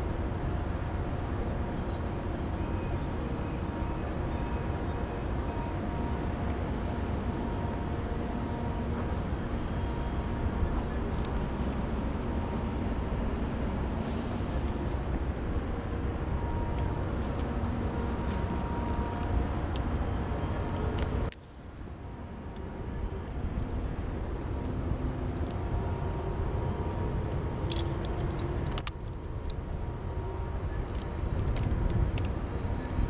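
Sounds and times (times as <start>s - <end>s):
steady low rumble: 0.0s - 33.0s
metal hardware clinking: 18.2s - 19.2s, 27.7s - 29.6s.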